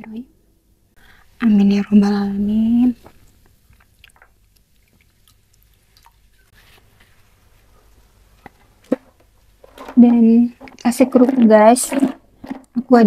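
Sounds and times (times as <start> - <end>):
hands being washed: 3.0 - 6.6.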